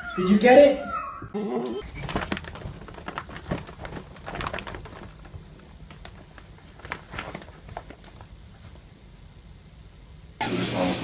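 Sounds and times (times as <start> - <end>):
cat claws scratching fabric: 2.0 - 8.9.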